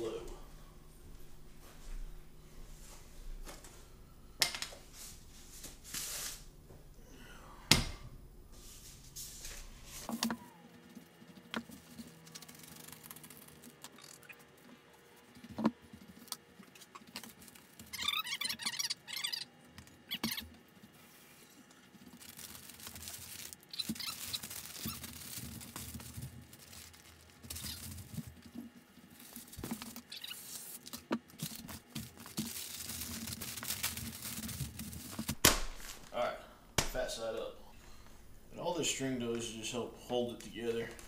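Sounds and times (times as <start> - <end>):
stiff paper rustling and crinkling: 8.6 - 19.2, 20.2 - 36.2.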